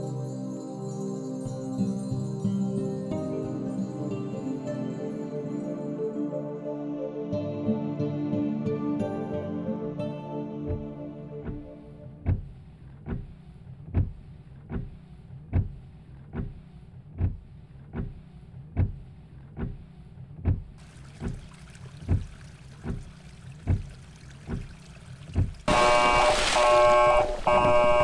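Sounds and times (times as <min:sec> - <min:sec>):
low thuds: 0:10.7 - 0:28.0.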